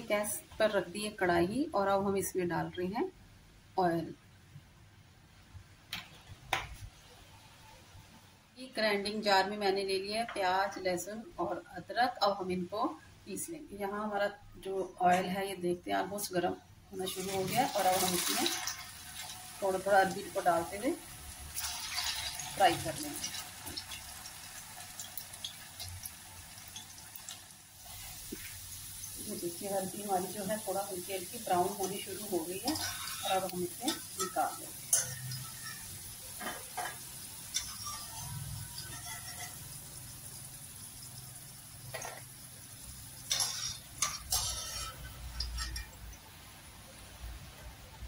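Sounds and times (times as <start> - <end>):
food deep-frying in oil: 16.9 - 48.0.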